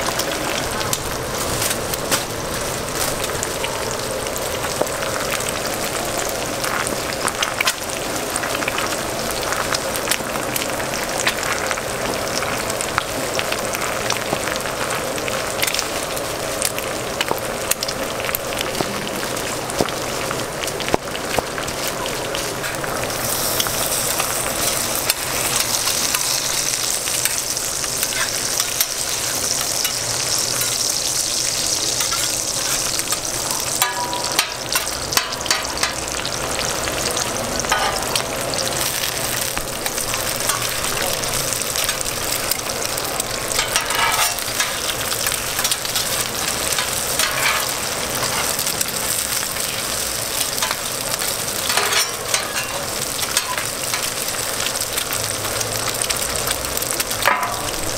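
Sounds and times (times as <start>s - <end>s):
food sizzling on a griddle: 0.0s - 57.9s
metal spatulas scraping griddle: 43.6s - 44.9s, 46.8s - 48.6s, 51.6s - 54.0s.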